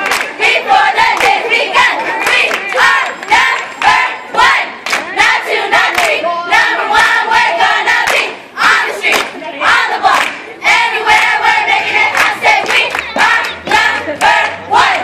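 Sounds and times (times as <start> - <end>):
hand claps: 0.0 - 0.4
girls chanting in unison: 0.0 - 15.0.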